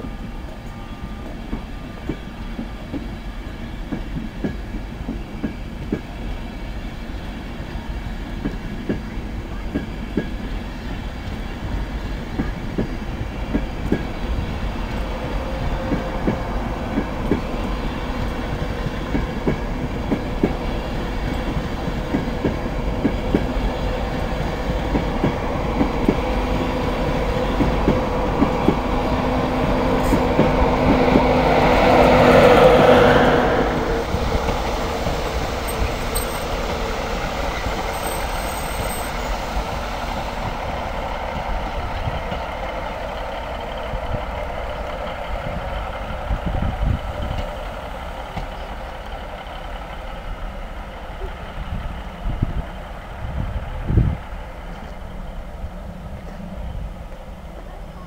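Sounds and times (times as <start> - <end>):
wheels clicking over rail joints: 35.6 - 36.8.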